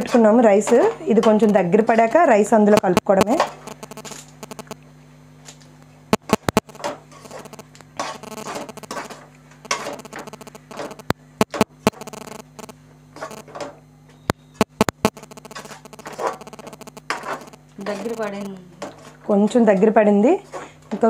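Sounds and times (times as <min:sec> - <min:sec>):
steady low hum: 0:00.0 - 0:21.0
spoon stirring and scraping pan: 0:06.9 - 0:10.0, 0:17.0 - 0:18.0.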